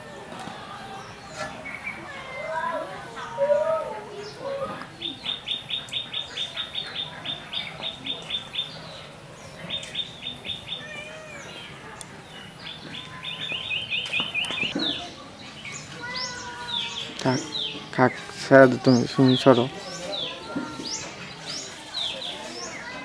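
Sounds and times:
varied bird calls: 0.0s - 23.0s
rapid bird chirps: 5.0s - 10.8s, 12.3s - 23.0s.

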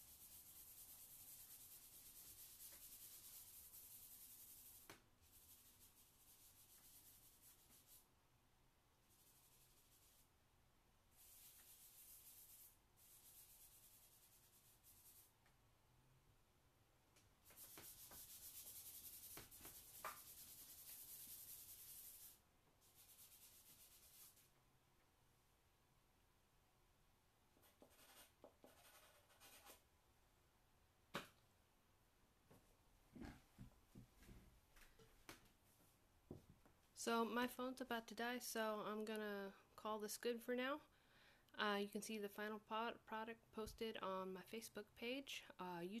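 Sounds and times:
hand rubbing on paper: 0.0s - 8.0s, 9.1s - 10.3s, 11.1s - 15.3s, 17.4s - 24.5s.

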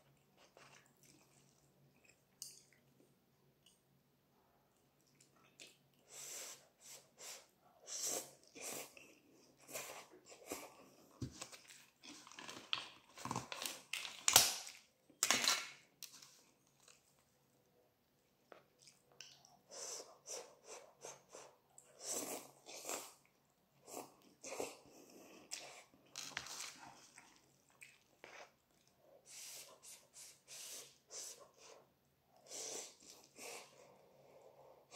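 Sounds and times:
person slurping and chewing noodles: 18.6s - 34.9s.

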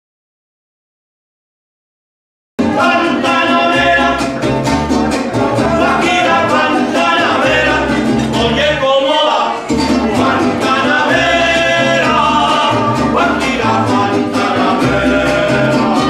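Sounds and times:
deep bass guitar line: 2.6s - 9.0s, 9.6s - 16.0s
person singing: 2.6s - 16.0s
strummed guitars: 2.6s - 16.0s.

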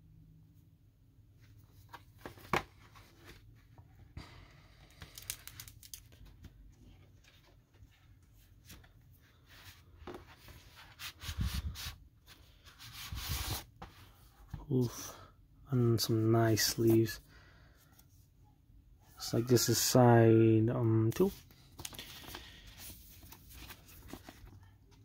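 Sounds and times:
paper sleeve rustling and scraping: 9.6s - 14.2s.

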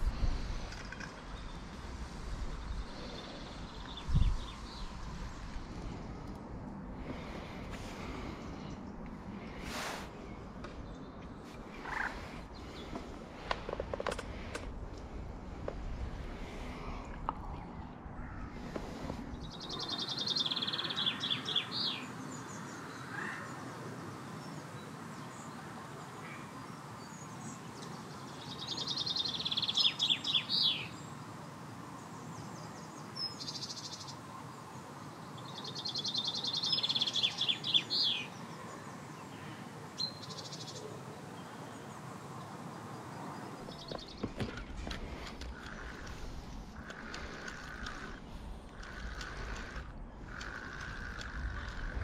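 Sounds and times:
songbird trilling: 45.5s - 52.0s.

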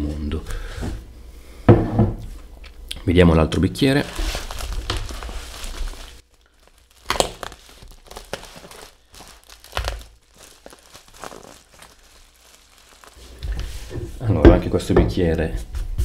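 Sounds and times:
bubble wrap crinkling: 3.8s - 14.2s.

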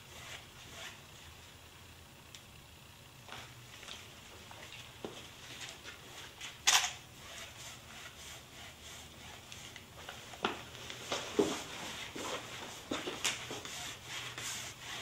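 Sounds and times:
paintbrush scraping on panel: 7.2s - 15.0s.

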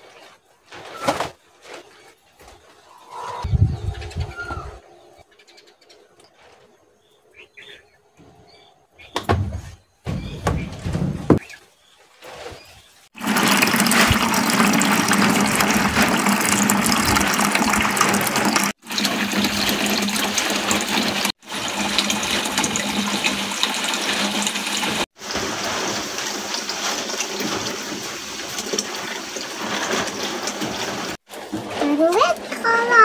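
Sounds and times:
running water rushing: 13.1s - 33.0s.

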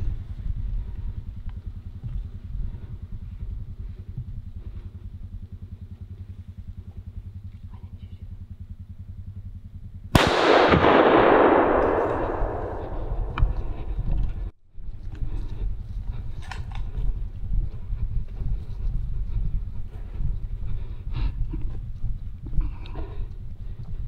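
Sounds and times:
low rapid throbbing: 0.0s - 14.6s
rifle shot with echo: 10.1s - 13.8s.

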